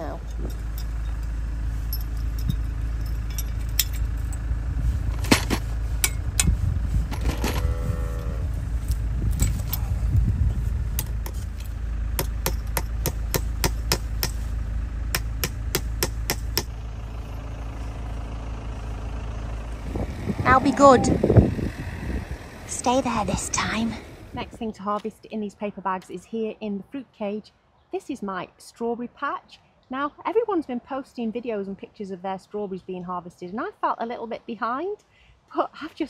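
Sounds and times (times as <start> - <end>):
low wind rumble: 0.0 - 25.7.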